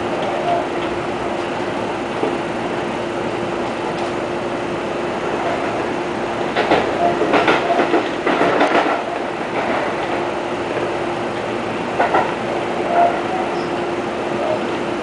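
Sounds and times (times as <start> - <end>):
electric train running noise: 0.0 - 15.0
wheels clacking over rail joints: 5.4 - 14.8.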